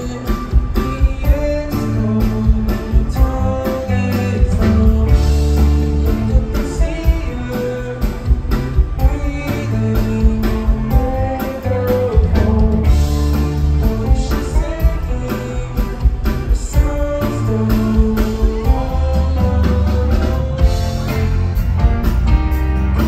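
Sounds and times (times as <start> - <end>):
bass: 0.0 - 23.0
rock band guitar lines: 0.0 - 23.0
steady drum beat: 0.0 - 23.0.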